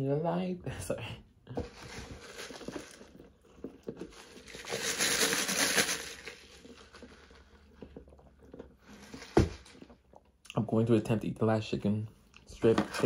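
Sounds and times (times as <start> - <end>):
food packaging crinkling: 1.6 - 10.0.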